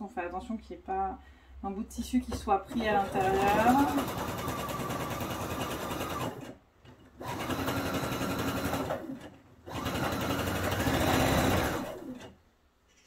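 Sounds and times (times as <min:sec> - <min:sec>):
sewing machine motor whine: 0:02.7 - 0:06.6, 0:07.2 - 0:12.3.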